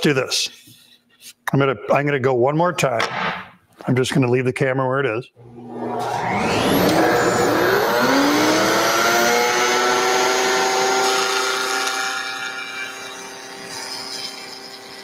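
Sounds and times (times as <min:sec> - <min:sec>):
router motor whining: 0:05.4 - 0:15.0.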